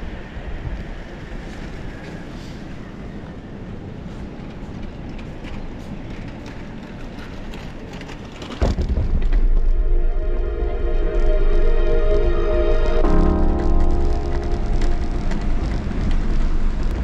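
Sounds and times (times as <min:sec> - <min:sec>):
skateboard wheels rumbling: 0:00.1 - 0:09.7, 0:13.4 - 0:17.0
wheels rumbling on wooden decking: 0:14.1 - 0:17.0.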